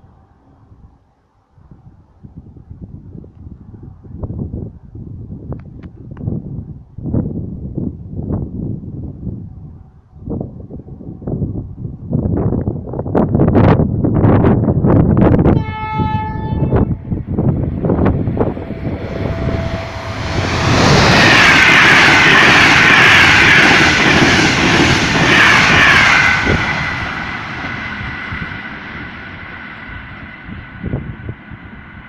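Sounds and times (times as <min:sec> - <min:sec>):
train wheels rushing on rail: 0:16.6 - 0:32.0
steady high tones: 0:16.8 - 0:30.6.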